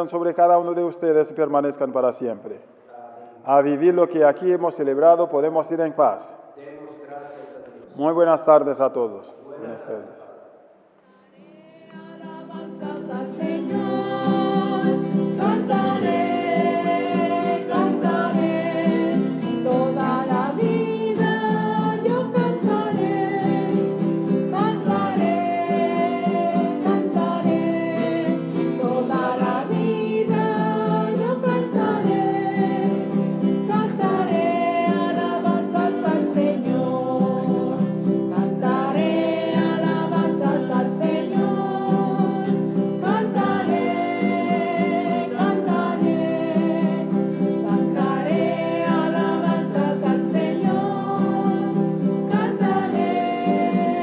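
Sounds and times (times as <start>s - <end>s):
person singing: 11.2s - 54.0s
strummed acoustic guitar: 11.2s - 54.0s.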